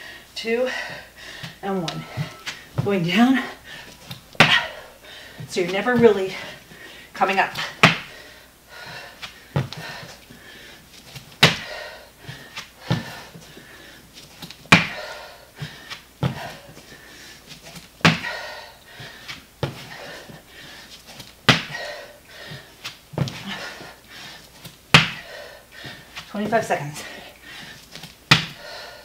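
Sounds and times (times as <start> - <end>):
hands and feet thudding on floor: 1.4 - 4.7, 24.6 - 25.2, 28.0 - 28.6.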